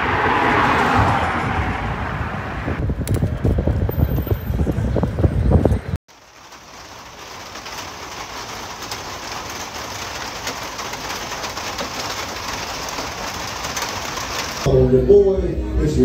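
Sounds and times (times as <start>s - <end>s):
steady rain falling: 6.1s - 14.7s.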